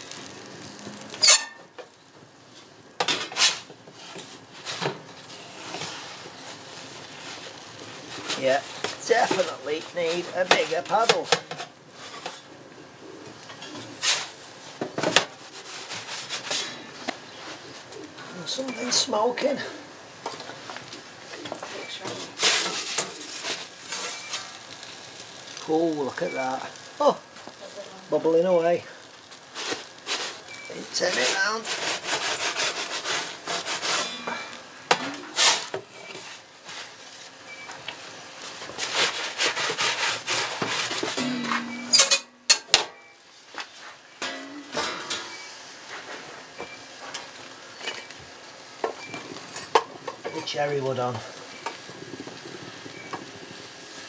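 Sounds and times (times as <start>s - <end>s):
metal pizza peel scraping on stone: 15.4s - 16.9s, 22.2s - 24.8s, 31.0s - 36.9s, 38.6s - 42.4s.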